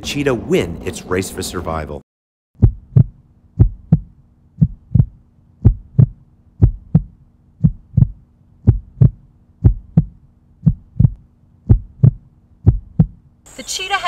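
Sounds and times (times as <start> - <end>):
heartbeat: 2.6 - 13.2
faint low hum: 2.6 - 14.0.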